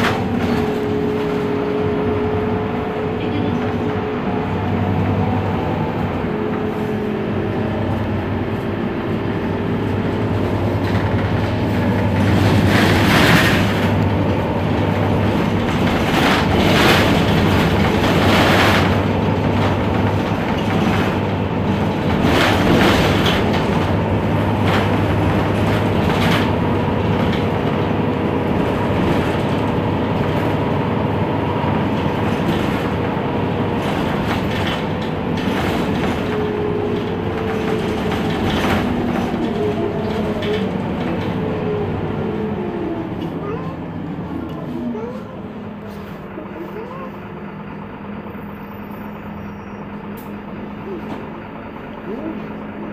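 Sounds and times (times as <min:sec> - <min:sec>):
bus engine humming: 0:00.0 - 0:52.9
knocks and rattles: 0:10.7 - 0:27.9, 0:31.8 - 0:41.4.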